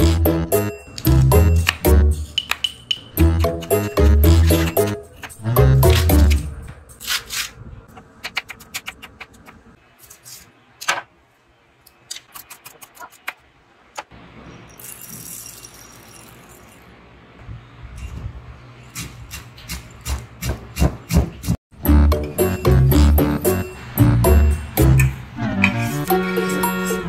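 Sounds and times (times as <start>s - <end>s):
pestle pounding in steel mortar: 19.0s - 21.6s.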